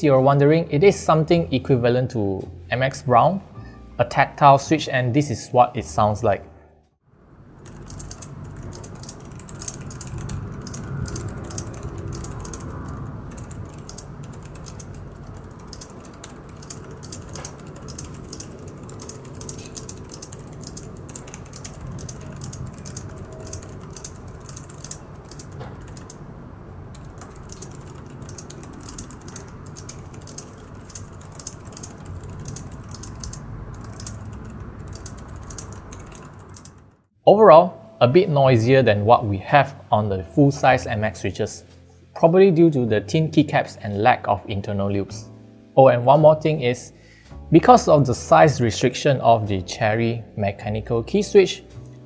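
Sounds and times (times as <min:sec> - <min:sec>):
fast keyboard typing: 0:07.6 - 0:37.0.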